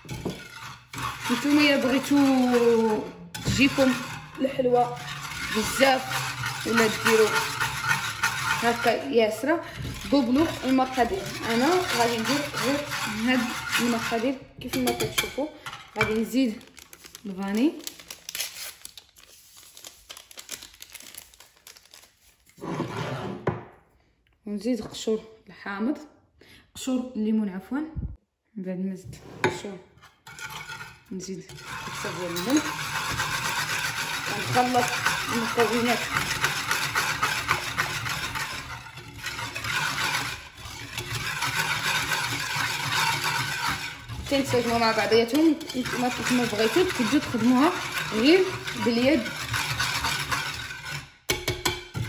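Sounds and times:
wire whisk beating in clay dish: 0.0 - 16.6, 30.3 - 52.0
sugar sachet crinkling: 15.9 - 22.6
sachet tearing open: 16.5 - 22.6.

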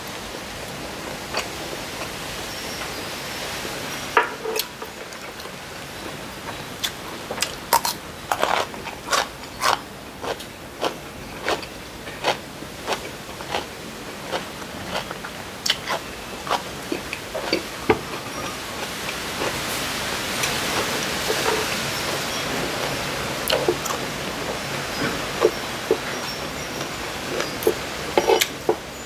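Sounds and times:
constant hiss: 0.0 - 29.0
person chewing crunchy food: 6.5 - 28.8.

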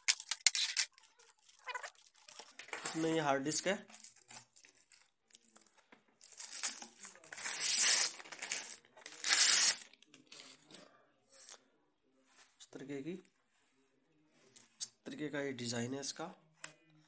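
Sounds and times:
plastic bag crinkling: 0.0 - 5.0.

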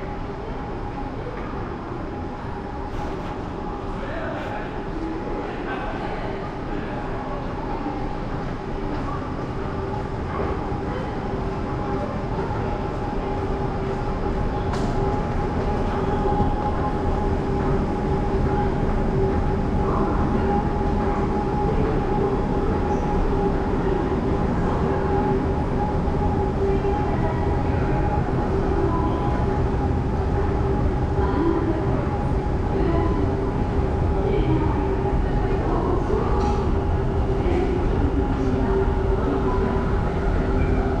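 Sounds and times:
constant hum: 0.0 - 41.0
subway train rumble: 0.0 - 41.0.

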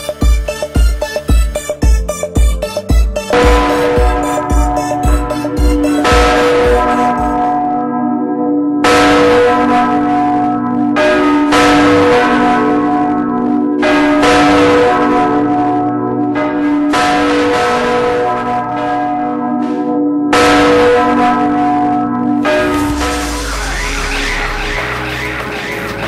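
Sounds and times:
deep bass beat: 0.0 - 7.6, 22.5 - 26.0
church bells ringing: 0.0 - 26.0.

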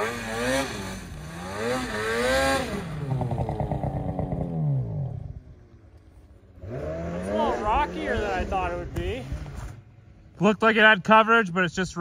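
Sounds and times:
snowmobile engine revving: 0.0 - 5.7, 6.5 - 10.0.

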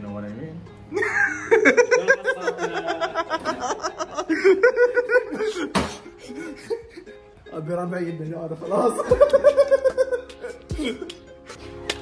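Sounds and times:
man laughing hard: 1.0 - 7.2, 9.0 - 11.1.

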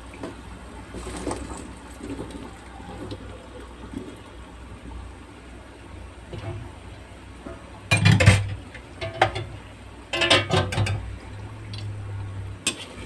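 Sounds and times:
low steady hum: 0.0 - 13.0
kitchenware knocks and clinks: 7.9 - 9.5, 10.1 - 11.0.

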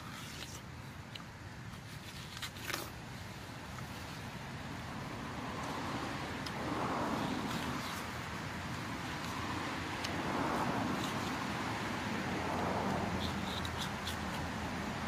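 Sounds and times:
road traffic: 0.0 - 15.0
watermelon chewing clicks: 13.2 - 14.5.

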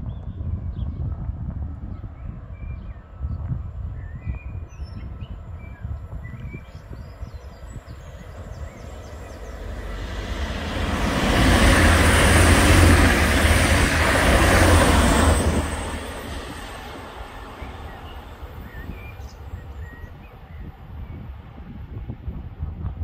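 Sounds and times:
diesel train passing: 6.8 - 21.9.

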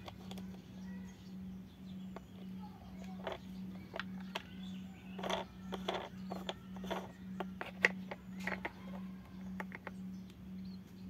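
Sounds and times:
plastic toy parts clicking: 0.0 - 0.6, 3.1 - 10.0
steady low hum: 0.0 - 11.0.

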